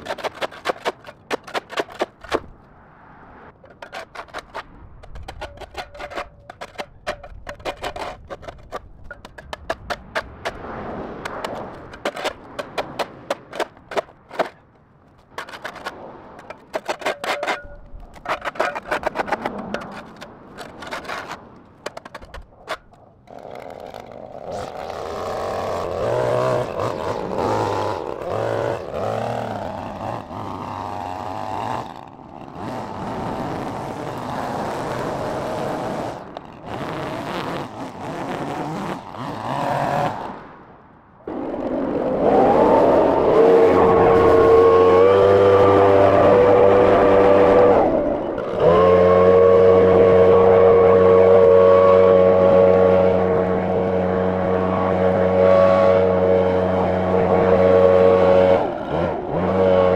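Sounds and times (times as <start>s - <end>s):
shovel scraping concrete: 0.0s - 2.5s, 3.7s - 14.6s, 15.2s - 40.2s
string trimmer running: 23.3s - 40.3s, 43.2s - 59.9s.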